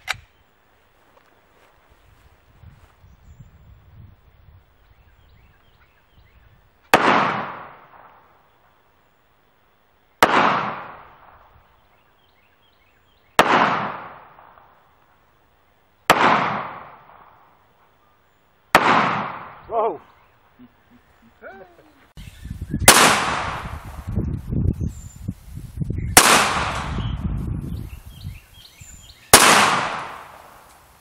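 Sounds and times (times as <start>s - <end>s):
pistol shots with echo: 6.9s - 8.3s, 10.2s - 11.4s, 13.4s - 14.8s, 16.1s - 17.4s, 18.7s - 19.6s, 22.9s - 23.7s, 26.2s - 27.0s, 29.3s - 30.6s.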